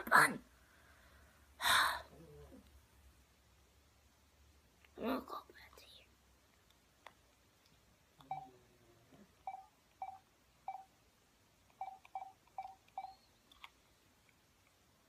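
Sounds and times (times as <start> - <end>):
smartphone keypad beeps: 8.2 - 8.6, 9.4 - 10.9, 11.8 - 13.3.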